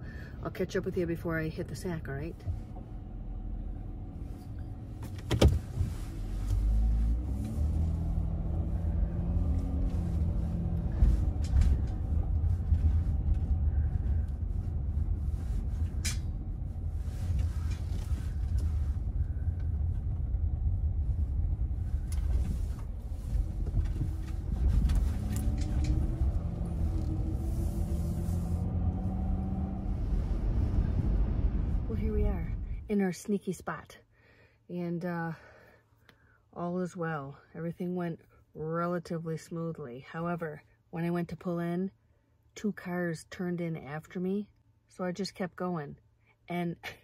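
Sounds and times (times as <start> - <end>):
van engine running: 0.0 - 32.9
road rumble: 0.0 - 35.8.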